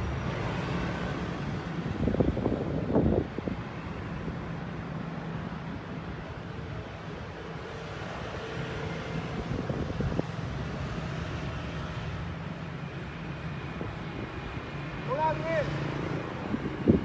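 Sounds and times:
traffic engines running: 0:00.0 - 0:17.0
wind on microphone: 0:01.1 - 0:04.4, 0:08.0 - 0:11.5, 0:16.0 - 0:17.0.

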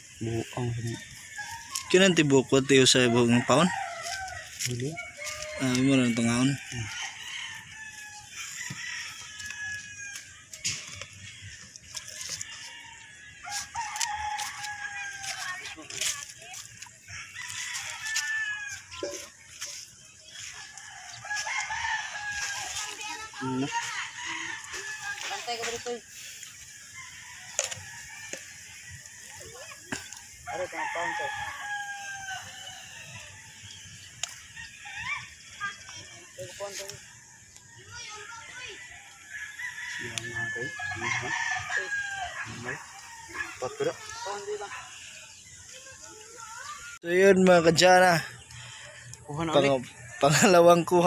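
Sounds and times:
rooster crowing: 0:00.2 - 0:51.0.

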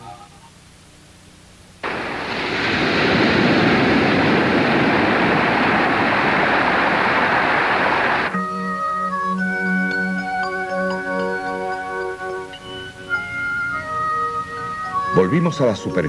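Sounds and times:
sea surf breaking on rocks: 0:01.8 - 0:08.3.

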